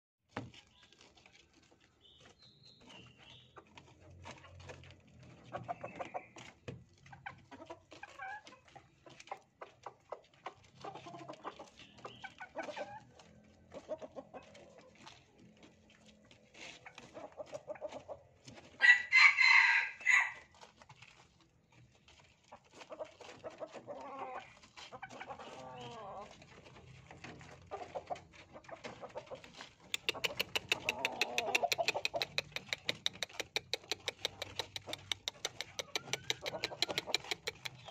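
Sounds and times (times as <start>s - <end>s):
chicken clucking: 0.9s - 37.9s
rooster crowing: 18.8s - 20.4s.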